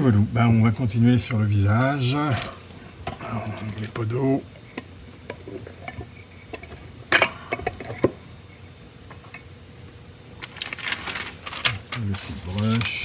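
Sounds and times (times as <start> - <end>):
rustling: 10.4 - 13.0.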